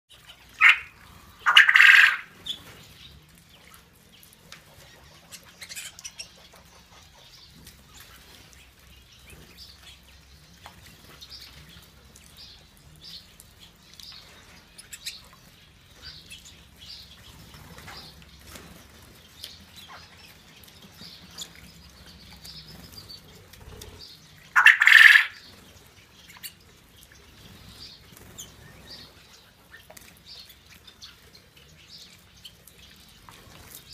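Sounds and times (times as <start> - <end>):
wings fluttering and water splashing: 0.1 - 33.9
budgerigars chirping: 0.2 - 3.1, 4.7 - 8.4, 19.5 - 26.6.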